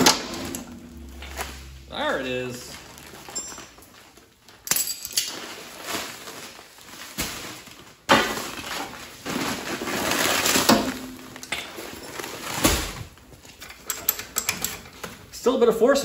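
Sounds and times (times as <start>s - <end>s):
plastic sacks rustling and crunching: 0.9s - 13.6s
thumps and clinks: 2.9s - 3.9s, 4.6s - 5.3s.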